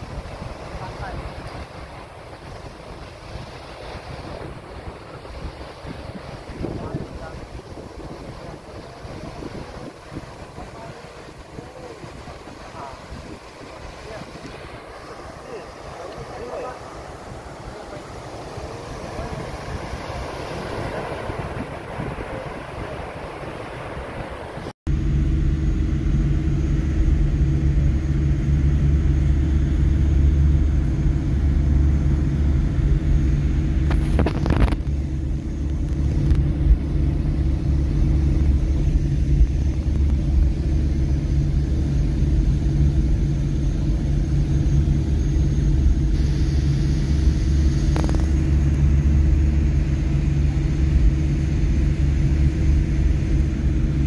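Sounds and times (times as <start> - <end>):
engine droning steadily: 0.0 - 54.0.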